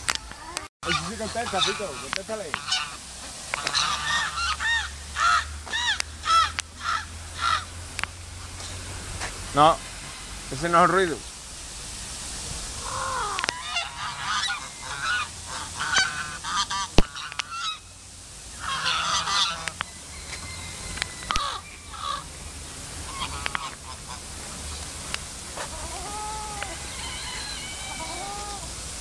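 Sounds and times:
waterfowl honking: 0.1s - 7.7s, 12.8s - 17.9s, 18.6s - 22.3s, 23.0s - 24.8s, 25.5s - 28.7s.

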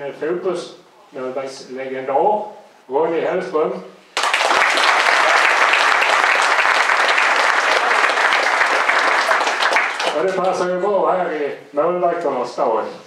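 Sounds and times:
audience applauding: 4.2s - 10.6s.

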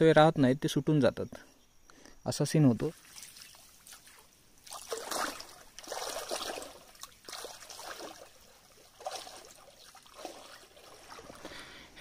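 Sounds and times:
stream trickling and splashing: 2.7s - 12.0s.

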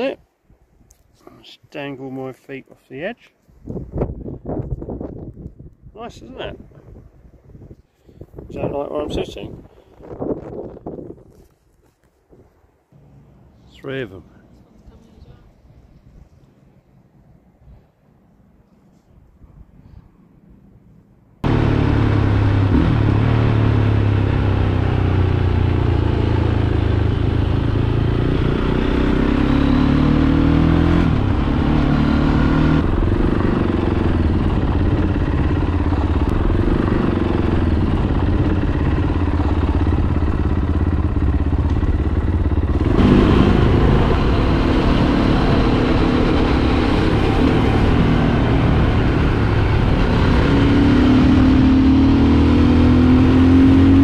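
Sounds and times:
motorcycle engine running: 21.4s - 54.0s.

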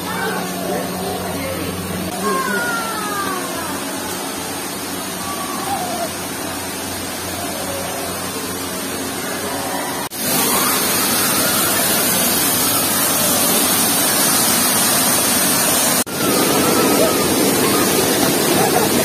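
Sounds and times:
faint children's voices: 0.0s - 14.2s, 16.1s - 19.0s
waterfall rushing: 0.0s - 19.0s.

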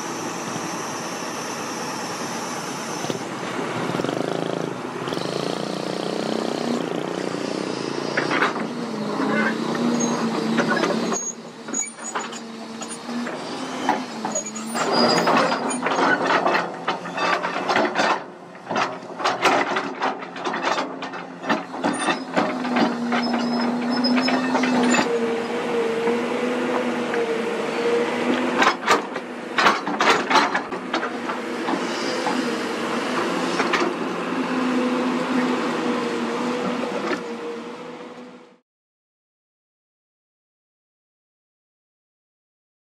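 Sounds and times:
metallic clanks and rattles: 14.8s - 25.1s.

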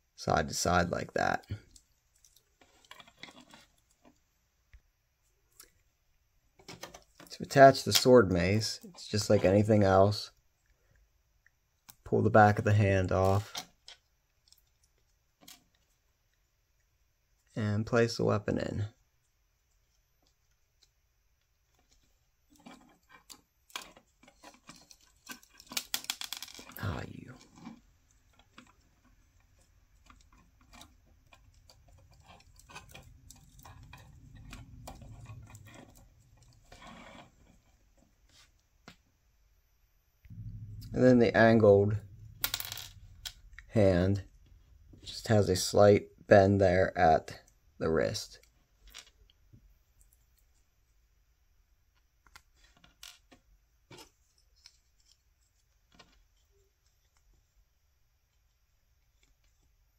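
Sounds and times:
plastic parts clicking: 21.7s - 37.8s
low rubbing rumble: 31.5s - 37.6s, 40.3s - 45.9s.

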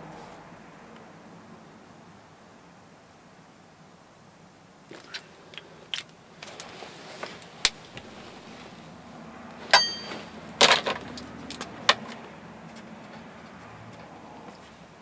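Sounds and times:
ringing clink: 9.7s - 10.3s.

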